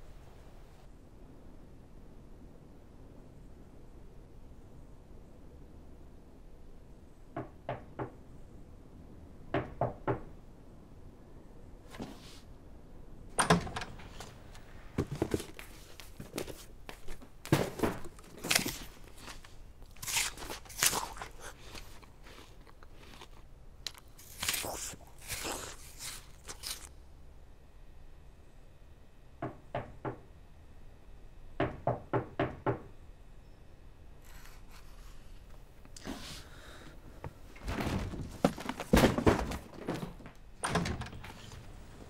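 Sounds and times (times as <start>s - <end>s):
sharp crunches and knocks: 15.0s - 26.9s, 37.6s - 40.4s.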